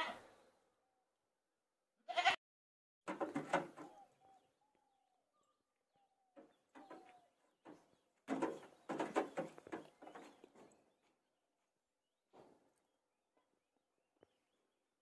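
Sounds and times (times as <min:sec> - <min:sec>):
goat hooves scraping on metal: 0:03.1 - 0:04.0, 0:06.4 - 0:11.2
faint bird calls: 0:03.8 - 0:07.9.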